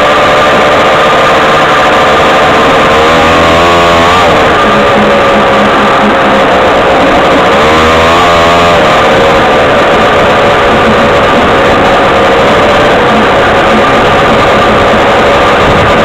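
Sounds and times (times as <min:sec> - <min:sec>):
off-road vehicle engine revving: 0:00.0 - 0:16.0.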